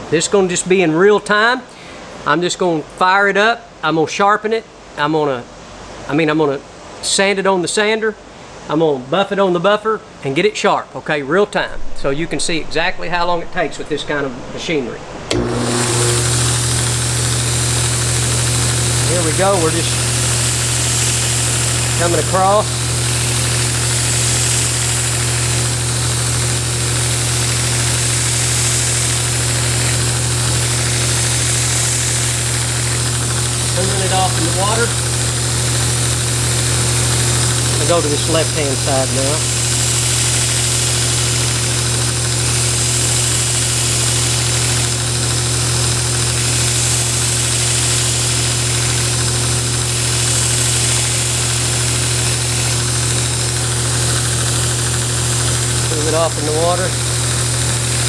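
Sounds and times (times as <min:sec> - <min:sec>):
belt grinder motor hum: 0:15.3 - 0:58.0
hissing grind of blade on belt: 0:15.8 - 0:58.0.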